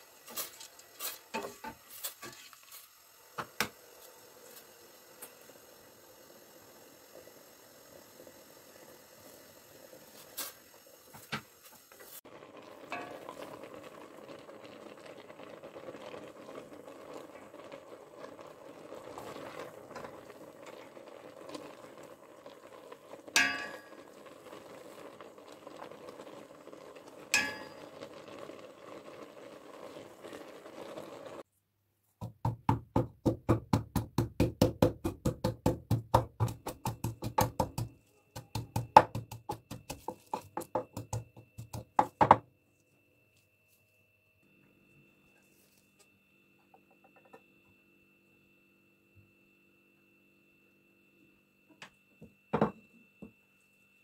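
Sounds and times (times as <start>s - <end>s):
wooden spoon stirring in pot: 0.3s - 2.9s, 38.4s - 42.2s
spoon clinking against pot: 23.4s - 24.0s, 27.4s - 27.9s
mortar and pestle pounding: 32.2s - 42.4s.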